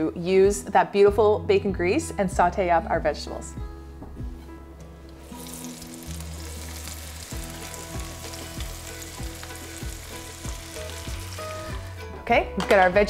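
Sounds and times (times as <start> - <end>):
vegetables sizzling in a skillet: 5.2 - 12.1.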